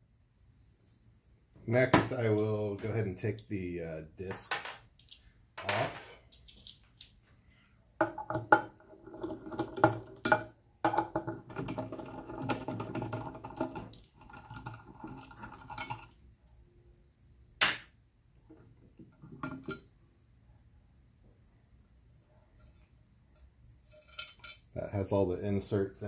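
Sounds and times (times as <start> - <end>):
tools clinking and scraping on metal: 4.4 - 7.1, 9.1 - 16.2, 19.1 - 19.9, 22.6 - 24.7.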